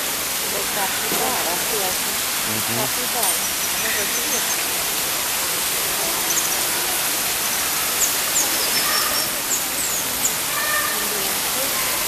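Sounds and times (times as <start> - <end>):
running water rushing: 0.0 - 12.0
small birds chirping: 7.5 - 11.3.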